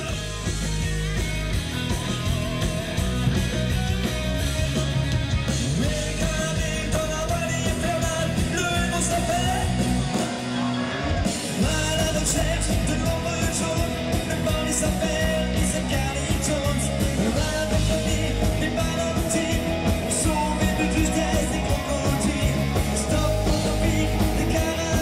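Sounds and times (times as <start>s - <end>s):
rock band with drums and bass: 0.0s - 25.0s
person singing: 5.8s - 25.0s.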